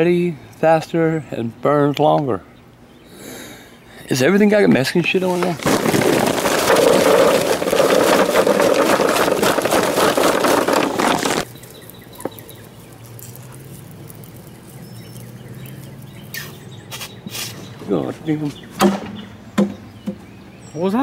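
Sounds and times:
charcoal pouring into metal grill: 5.3 - 16.3.

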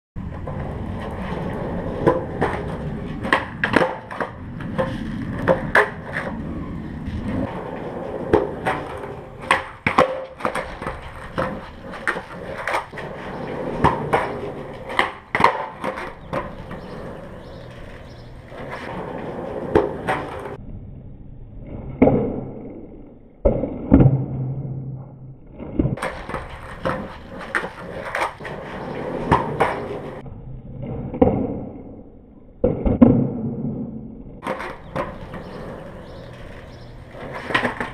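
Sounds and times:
skateboard wheels rolling on concrete: 0.2 - 37.9
skateboard slapping and clattering down: 0.4 - 20.6, 25.6 - 30.2, 34.4 - 37.9
skateboard tail pops: 2.0 - 7.6, 8.2 - 18.9, 25.6 - 30.2, 32.6 - 37.9.

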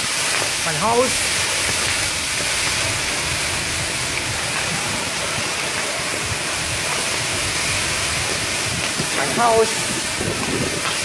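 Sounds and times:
fire hissing and crackling: 0.0 - 11.0.

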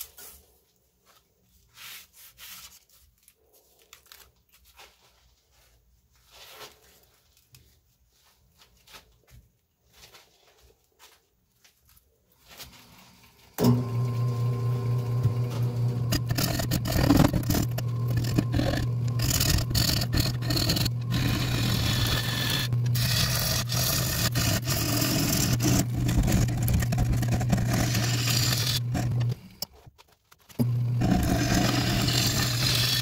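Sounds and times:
wood lathe humming: 13.6 - 29.6, 30.6 - 33.0
gouge scraping spinning wood: 14.9 - 29.6, 30.6 - 33.0.

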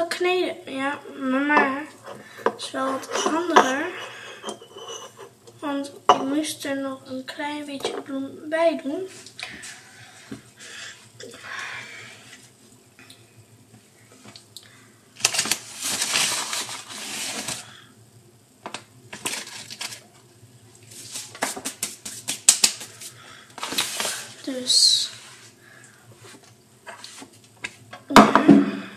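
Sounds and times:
rustling: 15.2 - 17.7.

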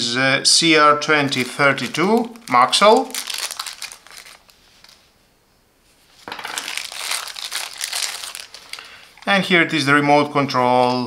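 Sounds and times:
plastic packaging crinkling: 1.0 - 5.1, 6.2 - 9.5.

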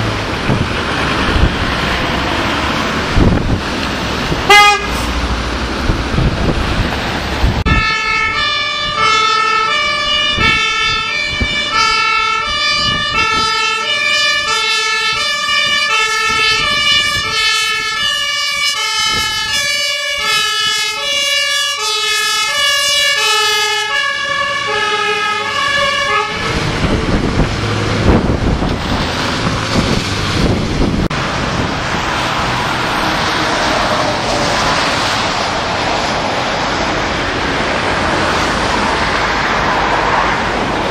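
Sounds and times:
vehicle and road noise: 0.0 - 40.9
two-tone fire engine siren: 4.5 - 5.0, 7.6 - 28.7.

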